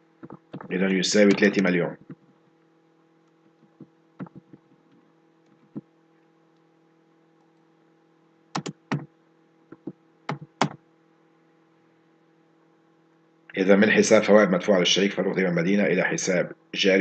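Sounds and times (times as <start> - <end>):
faint electrical hum: 0.0 - 17.0
keyboard keystrokes: 3.7 - 4.8, 8.6 - 9.1, 9.7 - 10.8.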